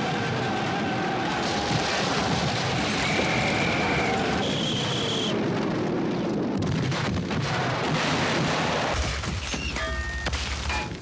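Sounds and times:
explosions: 0.0s - 11.0s
gunfire: 1.3s - 4.4s, 6.6s - 11.0s.

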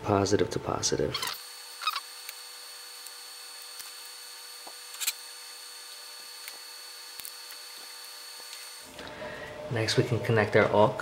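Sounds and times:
tape crinkle: 1.3s - 8.8s.

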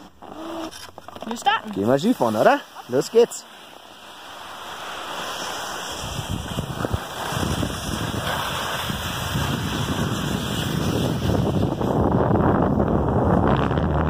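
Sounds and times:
skis hissing on snow: 1.4s - 12.2s
wind rushing over microphone: 4.8s - 14.0s.

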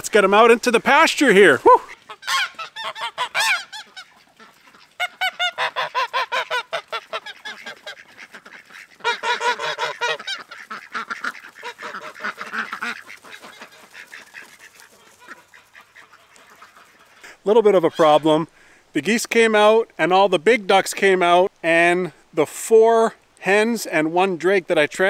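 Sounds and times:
ducks quacking: 0.0s - 18.5s
geese honking: 0.0s - 18.5s.

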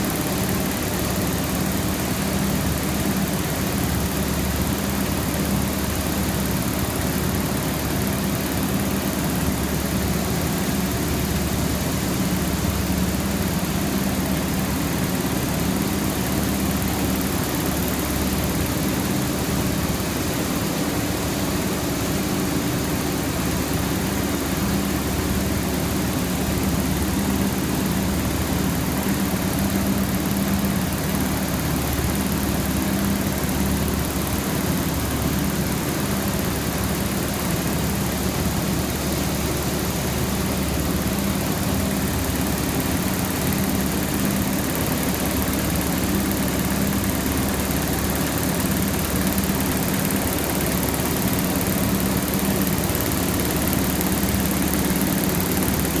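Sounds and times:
looms running: 21.0s - 56.0s.

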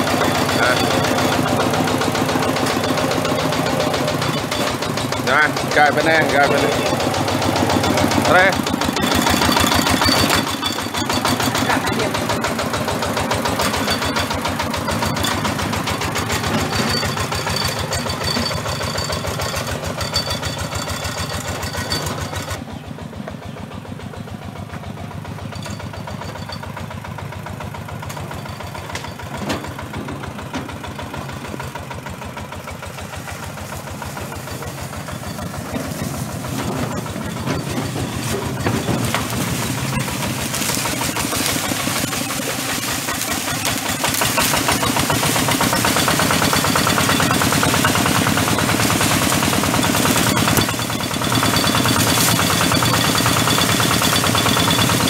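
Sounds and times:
diesel engine chugging: 0.0s - 55.0s.

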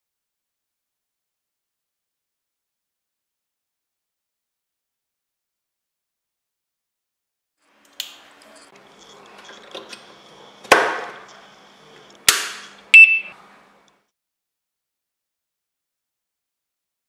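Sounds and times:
short high ringing beep: 13.0s - 13.3s.

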